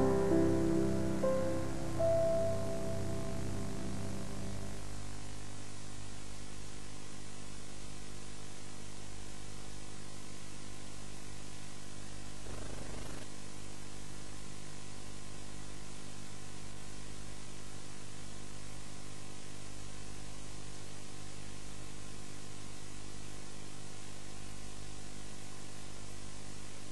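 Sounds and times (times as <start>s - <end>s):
even hiss: 0.0s - 4.9s
electrical hum: 0.0s - 5.7s.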